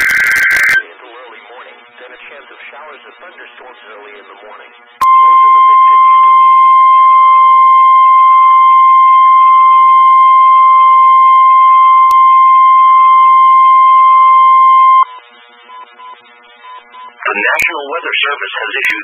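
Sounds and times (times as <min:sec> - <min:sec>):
steady electronic alarm tone: 0:00.0 - 0:00.8, 0:05.0 - 0:17.2.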